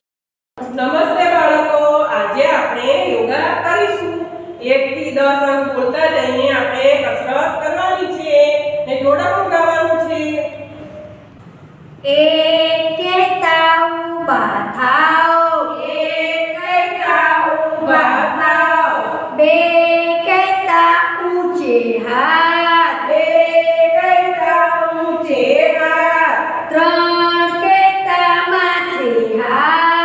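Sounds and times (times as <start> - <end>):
women singing a chant: 12.0 - 30.0.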